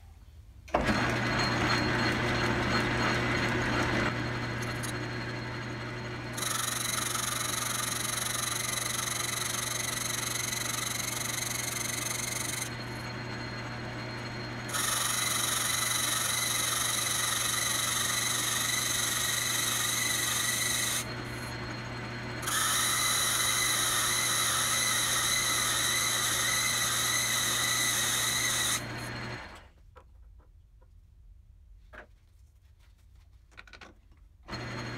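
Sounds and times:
lathe cutting metal: 0.8s - 29.6s
lathe motor hum: 0.8s - 29.6s, 34.5s - 34.9s.

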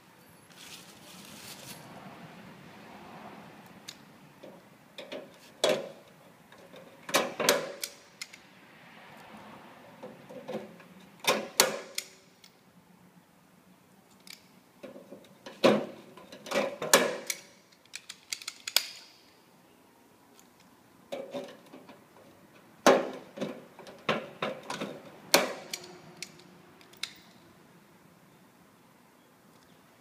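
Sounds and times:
rivet gun metallic clicks and snaps: 3.6s - 4.1s, 7.5s - 8.4s, 11.6s - 12.6s, 14.1s - 14.5s, 17.0s - 19.2s, 25.4s - 27.4s.

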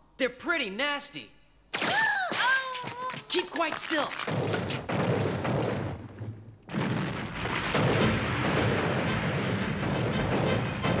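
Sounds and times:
tank gunfire and explosions: 4.2s - 11.0s.

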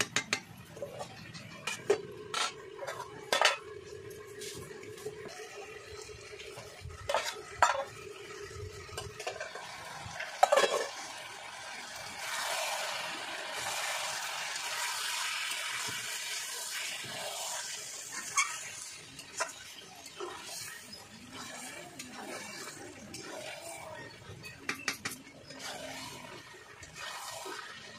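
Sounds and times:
metal spatula scraping a pan: 0.0s - 3.7s, 7.0s - 8.0s, 10.4s - 11.0s, 16.7s - 27.9s
chicken sizzling in a pan: 1.7s - 27.9s.

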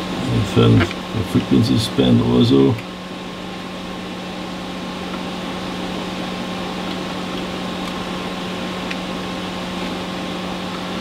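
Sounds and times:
electronic equipment fan whirr: 0.0s - 11.0s.

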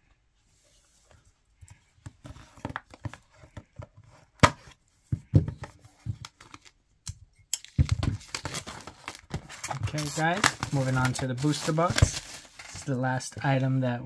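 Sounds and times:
hands handling plastic-wrapped box: 7.6s - 13.0s.

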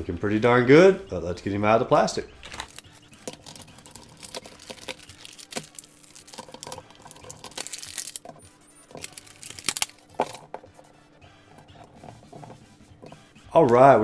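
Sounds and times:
plastic packaging crinkling: 2.4s - 10.5s.

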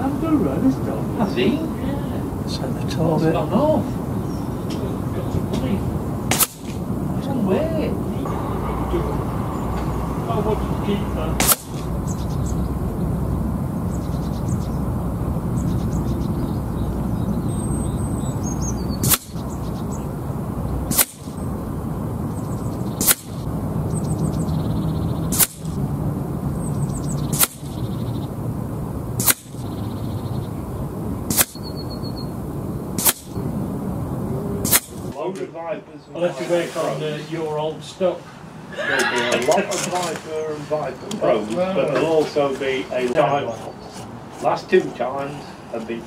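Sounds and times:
wind on microphone: 0.0s - 35.1s
birds chirping: 0.0s - 46.0s
air rifle shots: 6.2s - 6.9s, 11.4s - 11.9s, 19.0s - 19.4s, 20.8s - 21.4s, 22.9s - 23.5s, 25.3s - 25.8s, 27.2s - 27.8s, 29.2s - 29.7s, 31.3s - 31.7s, 33.0s - 33.4s, 34.6s - 35.1s.

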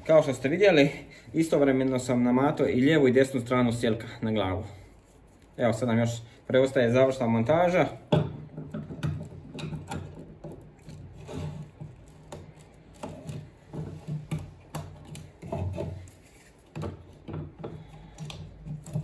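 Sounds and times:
nylon line rubbing: 15.2s - 16.7s.

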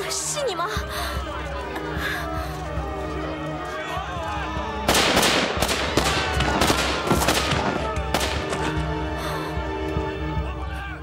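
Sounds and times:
rapid gunfire: 4.9s - 8.4s.

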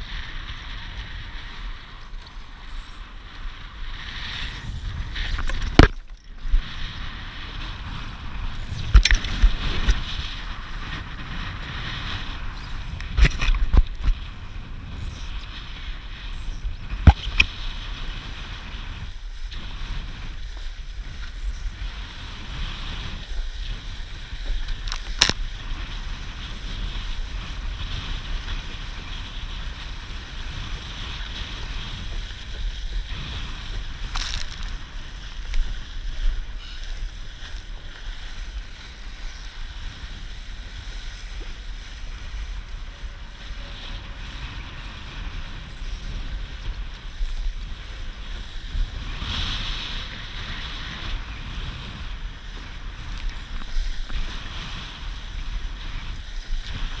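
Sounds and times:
wind buffeting microphone: 0.0s - 57.0s
water splashing against hull: 5.1s - 6.8s.

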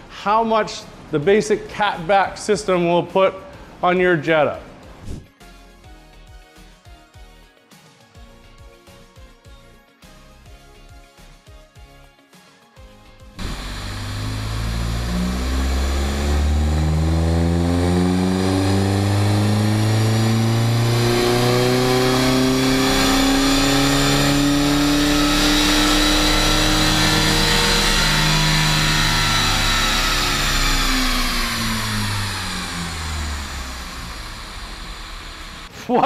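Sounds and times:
diesel car exhaust revving: 13.4s - 35.7s.

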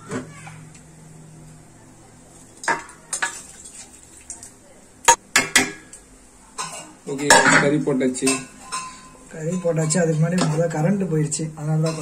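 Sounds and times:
metal pot clanking on rim: 11.8s - 12.0s.

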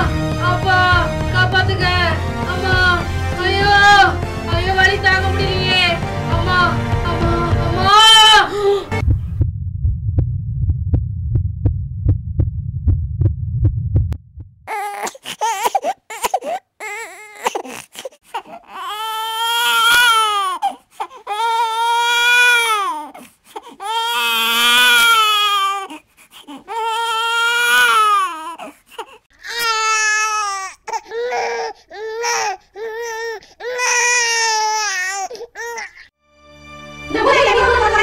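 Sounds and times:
baby crying: 14.7s - 36.1s.

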